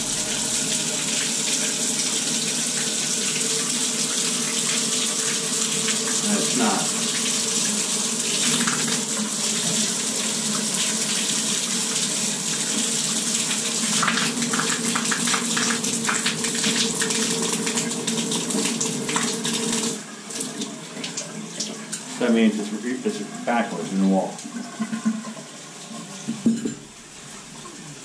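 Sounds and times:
low steady hum: 0.0s - 1.2s
water pouring onto shower floor: 0.0s - 22.4s.

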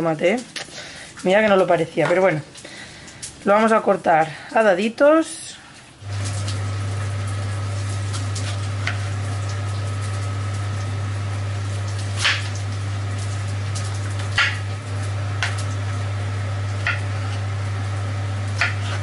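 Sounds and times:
extractor hood humming: 6.0s - 19.0s.

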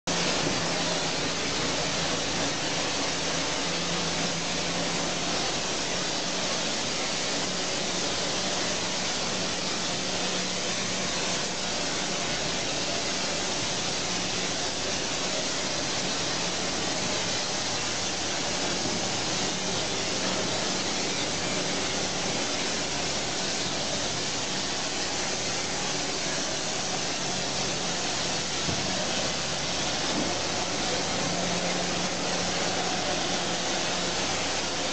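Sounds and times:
hose spray hissing: 0.1s - 34.9s.

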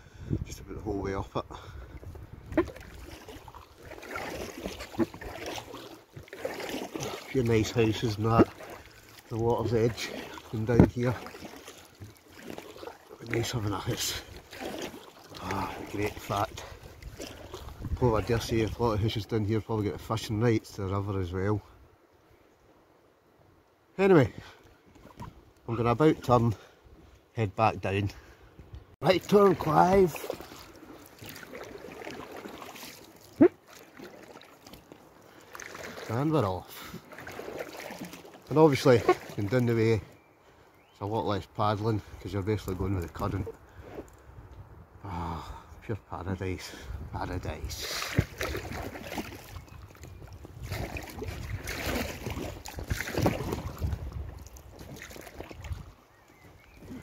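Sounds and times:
wind rumble on microphone: 0.0s - 3.1s, 16.0s - 19.2s, 44.2s - 45.8s, 46.8s - 56.0s
water splashing and trickling: 0.0s - 21.6s, 24.0s - 44.4s, 46.5s - 57.0s
kayak paddle strokes: 2.0s - 19.1s, 29.0s - 39.8s, 47.7s - 57.0s.

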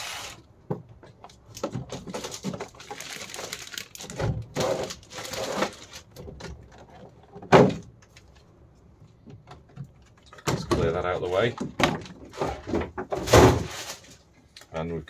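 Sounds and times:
plastic packaging crackling: 2.1s - 6.2s.

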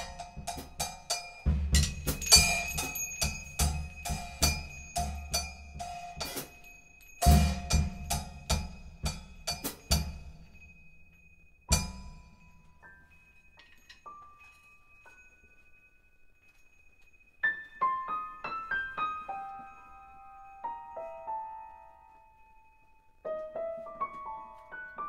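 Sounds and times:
drum kit improvisation: 0.0s - 10.4s
faint sustained high notes: 0.0s - 25.0s.

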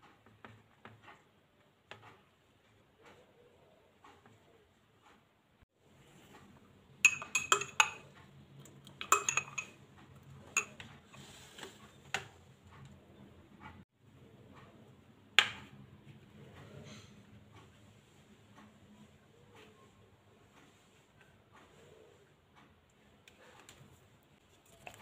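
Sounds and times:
metal spoon clinking against glass jar: 7.0s - 8.1s, 8.8s - 9.8s, 10.5s - 10.9s.

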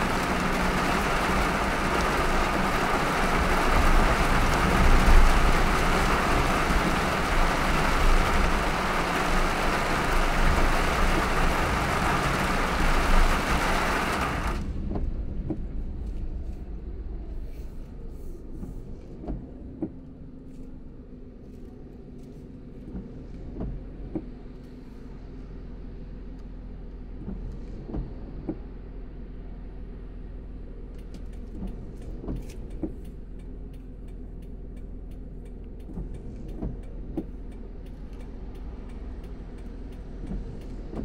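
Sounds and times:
rain and tyre spray hiss: 0.0s - 14.8s
low road rumble: 0.0s - 41.0s
faint ticks: 30.9s - 41.0s.

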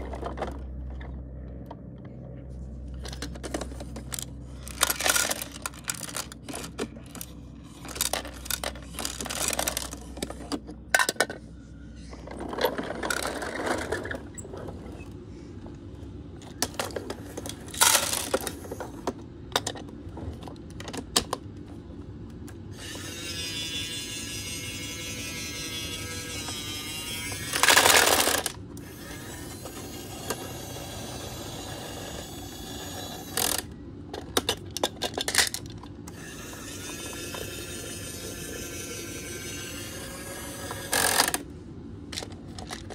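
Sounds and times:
plastic toy bins clicking: 3.0s - 11.4s, 16.4s - 21.4s, 27.5s - 28.6s, 33.4s - 35.9s, 42.1s - 42.9s.

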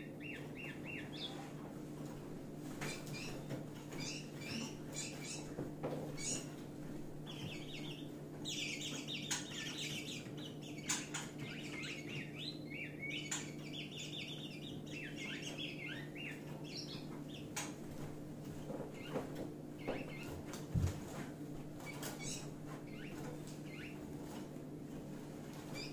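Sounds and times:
birds chirping agitatedly: 0.0s - 25.9s.

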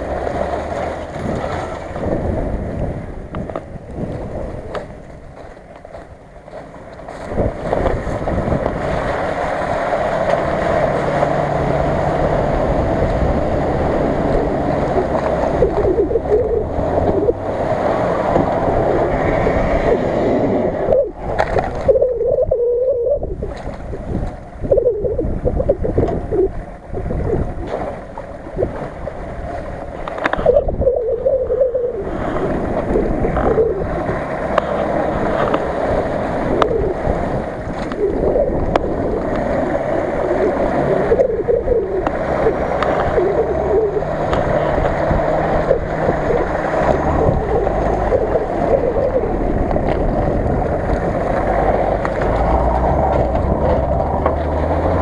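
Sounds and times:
engine revving and labouring: 0.0s - 55.0s
water splashing around wheels: 0.0s - 55.0s.

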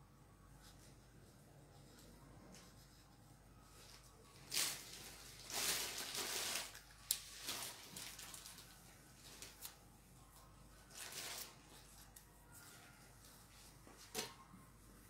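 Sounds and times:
fabric lace rustling: 3.6s - 14.0s.

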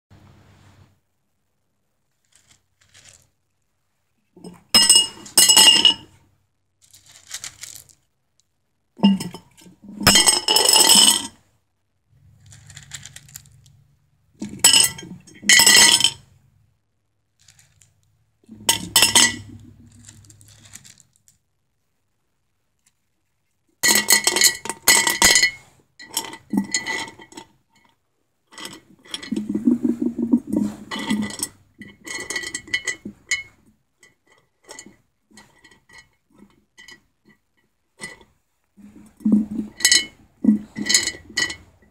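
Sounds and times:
rocks clattering in glass jar: 18.5s - 21.2s, 28.6s - 33.6s, 38.9s - 41.9s.

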